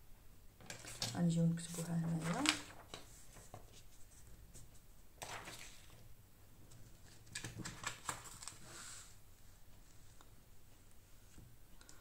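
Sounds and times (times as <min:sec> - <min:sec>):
paper rustling: 0:00.6 - 0:09.2.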